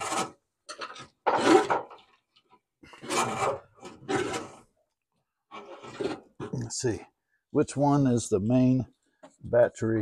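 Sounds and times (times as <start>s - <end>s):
wiring harness rubbing and scraping: 2.9s - 4.6s, 5.5s - 6.3s.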